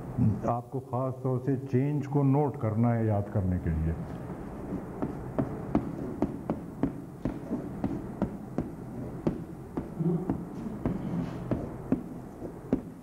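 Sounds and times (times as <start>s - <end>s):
low steady hum: 0.0s - 13.0s
chalk tapping on blackboard: 4.6s - 13.0s.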